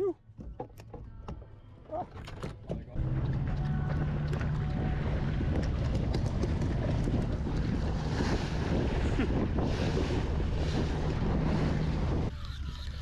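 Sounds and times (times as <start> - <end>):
boat engine hum: 0.0 - 13.0
water rushing along hull: 1.8 - 13.0
wind buffeting microphone: 3.0 - 12.3.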